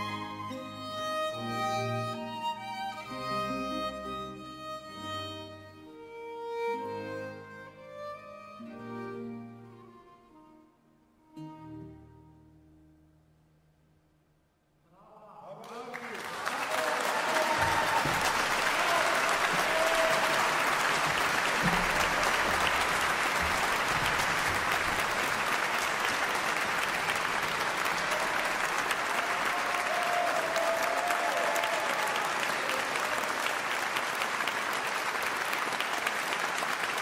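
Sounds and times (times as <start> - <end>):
audience applauding: 15.6 - 37.0.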